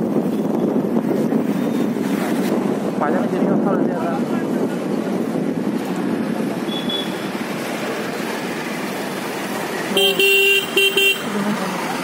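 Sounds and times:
traffic road noise: 0:00.0 - 0:12.0
vehicle horn honking: 0:10.0 - 0:11.3.

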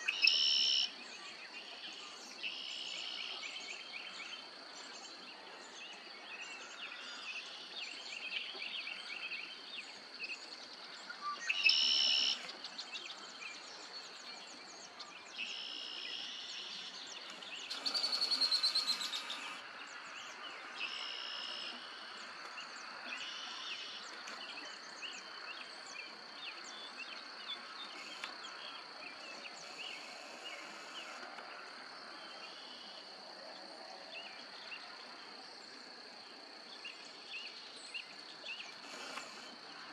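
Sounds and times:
birds singing: 0:00.0 - 0:33.1
high-pitched insect trill: 0:17.7 - 0:19.6.

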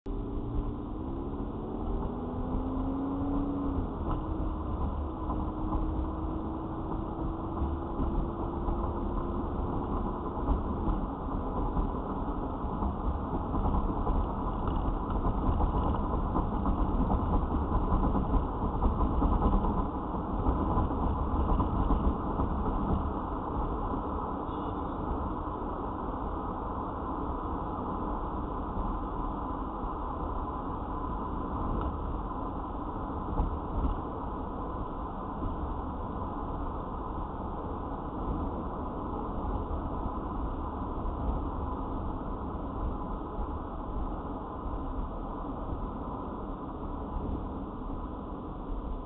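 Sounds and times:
car engine and tyre noise: 0:00.0 - 0:49.0.

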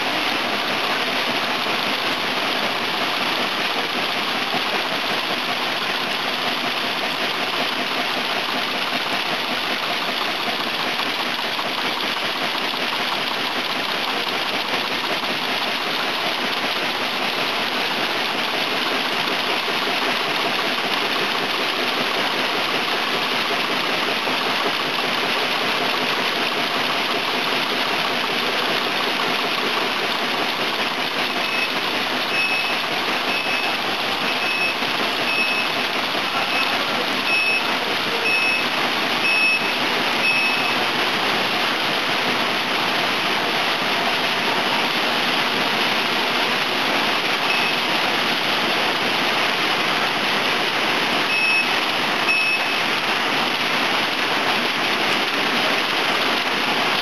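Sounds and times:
steady machine noise: 0:00.0 - 0:57.0.

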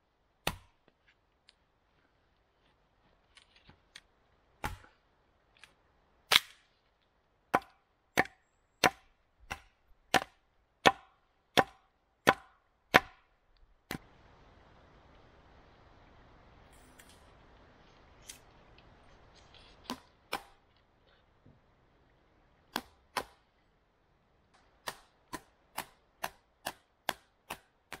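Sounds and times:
axe chopping into log: 0:00.5 - 0:00.7, 0:04.6 - 0:04.9, 0:07.6 - 0:13.2, 0:22.8 - 0:23.4.

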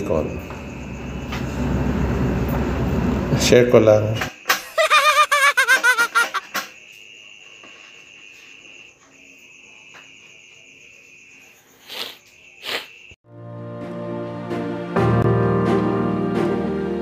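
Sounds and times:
cricket trilling: 0:00.0 - 0:03.1, 0:04.3 - 0:13.2.

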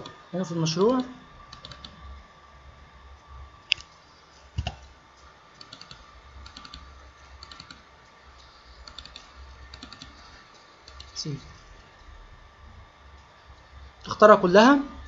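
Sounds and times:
low steady hum: 0:00.0 - 0:15.0
computer mouse clicking: 0:01.0 - 0:02.0, 0:05.6 - 0:07.8, 0:08.4 - 0:11.2.

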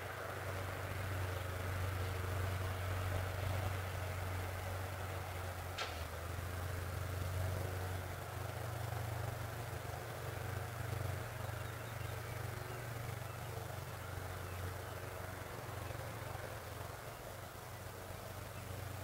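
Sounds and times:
low outdoor rumble: 0:00.0 - 0:19.0
wind through wheat: 0:00.0 - 0:19.0.

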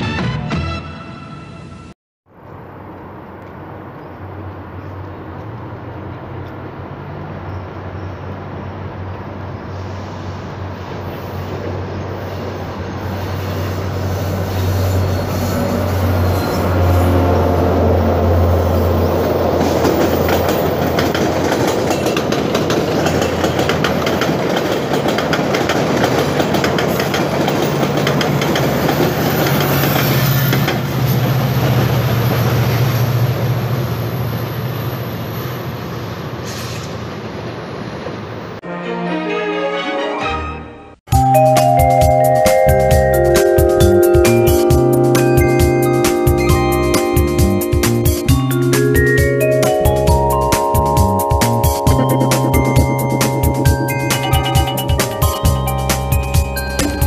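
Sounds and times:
diesel locomotive engine drone: 0:02.3 - 0:38.6, 0:41.2 - 0:57.0
high wheel squeal: 0:09.6 - 0:25.1, 0:26.1 - 0:37.1
wheels clicking over rail joints: 0:19.0 - 0:32.8, 0:48.8 - 0:57.0.

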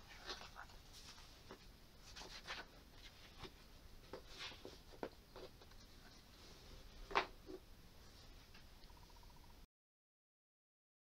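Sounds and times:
book pages rustling: 0:00.0 - 0:06.2.

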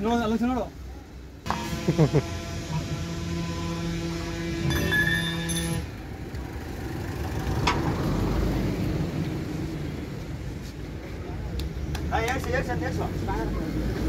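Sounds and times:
engine hum: 0:01.4 - 0:14.0
sharp metal clank: 0:04.7 - 0:05.9.

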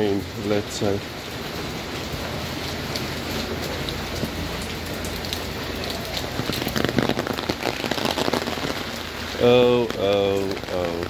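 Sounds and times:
heavy rain on pavement: 0:00.0 - 0:11.0
close drops spattering: 0:06.2 - 0:11.0.

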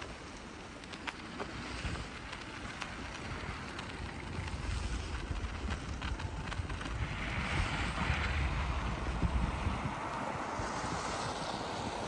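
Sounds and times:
road traffic hum: 0:00.0 - 0:12.0
wind buffeting microphone: 0:00.0 - 0:12.0.

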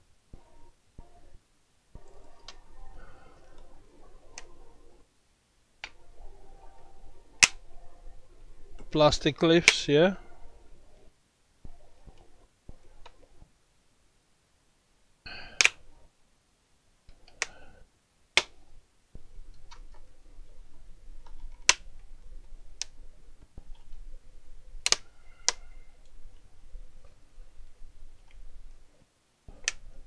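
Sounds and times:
plastic clips snapping: 0:07.4 - 0:07.6, 0:15.6 - 0:15.8, 0:21.2 - 0:21.8, 0:24.8 - 0:25.6.

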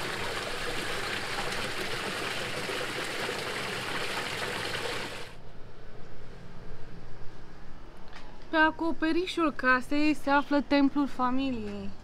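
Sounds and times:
running splashing water in pond: 0:00.0 - 0:05.4.

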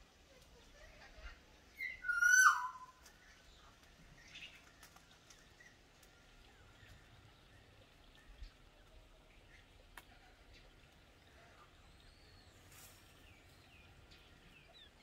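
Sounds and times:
faint background noise: 0:00.0 - 0:15.0
bird whistled call: 0:01.8 - 0:03.0.

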